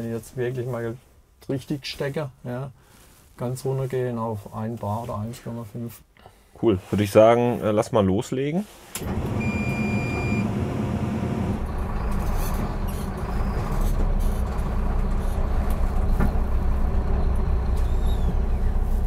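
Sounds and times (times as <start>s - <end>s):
diesel truck engine rumble: 9.0s - 19.0s
short electronic beep: 9.4s - 10.5s.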